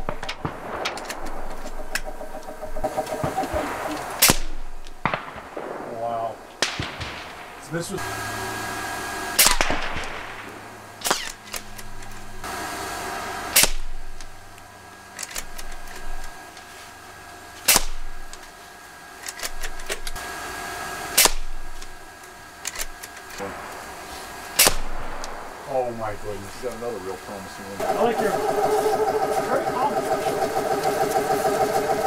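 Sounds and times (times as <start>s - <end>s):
air rifle shots: 0.0s - 8.2s, 9.4s - 11.4s, 23.4s - 26.4s
steady hum: 0.0s - 32.0s.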